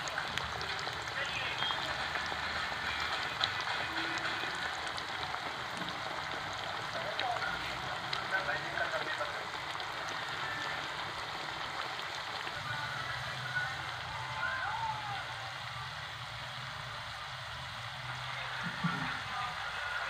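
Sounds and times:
potato slices sizzling in oil: 0:00.0 - 0:20.0.

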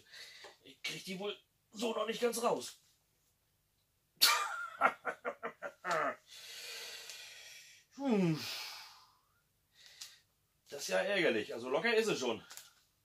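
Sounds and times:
man laughing: 0:04.2 - 0:06.2
long noisy breath out: 0:06.3 - 0:10.2.

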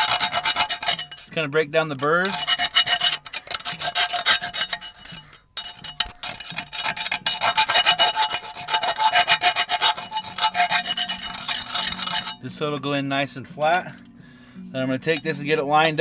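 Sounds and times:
hand file scraping metal: 0:00.0 - 0:12.4.

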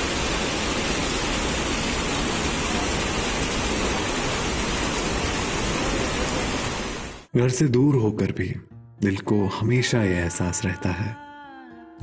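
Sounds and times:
floodwater rushing over road: 0:00.0 - 0:07.3.

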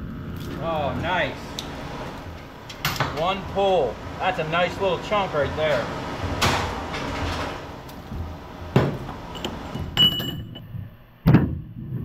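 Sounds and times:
metal clanks and knocks: 0:05.7 - 0:11.5
metallic ring: 0:09.3 - 0:10.7.

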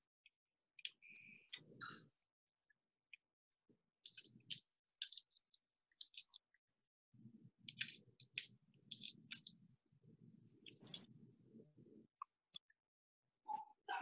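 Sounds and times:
glass pieces clicking: 0:04.0 - 0:06.3, 0:07.7 - 0:09.5.

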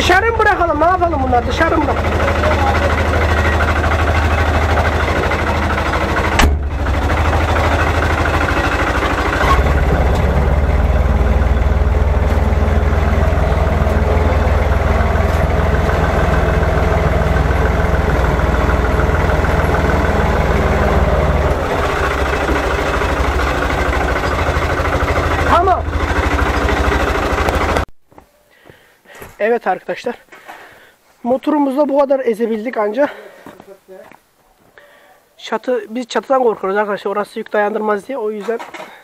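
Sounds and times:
tractor engine drone: 0:00.0 - 0:27.9.

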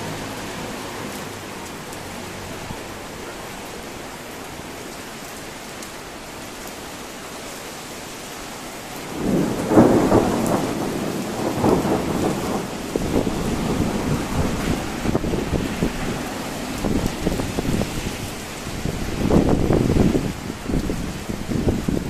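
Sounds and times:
thunder rumbling: 0:09.1 - 0:22.0.

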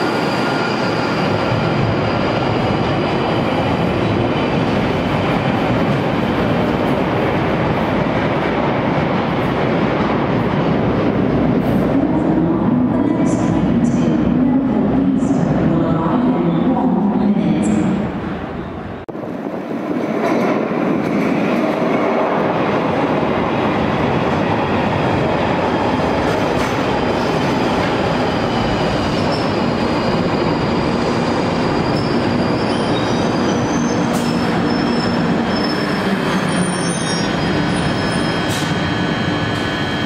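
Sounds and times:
high squeals of wheels and brakes: 0:00.0 - 0:03.2, 0:28.1 - 0:40.0.

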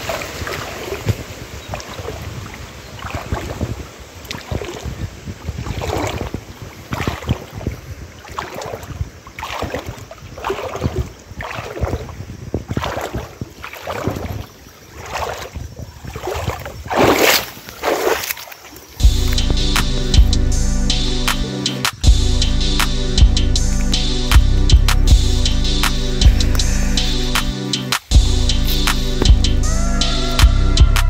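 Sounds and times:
wind rumble on microphone: 0:00.0 - 0:17.9.

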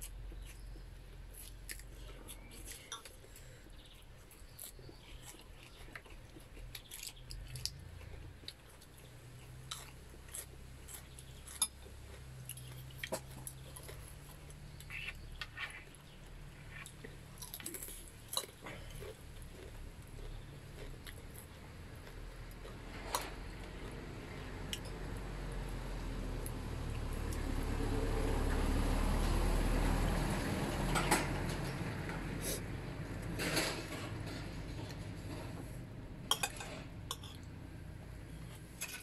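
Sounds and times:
person chewing food: 0:00.0 - 0:27.4, 0:36.3 - 0:37.5.

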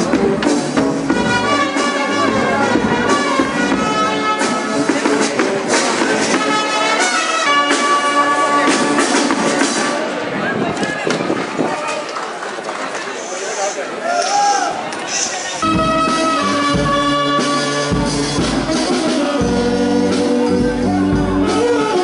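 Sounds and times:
brass band music: 0:00.0 - 0:10.4, 0:15.6 - 0:22.0.

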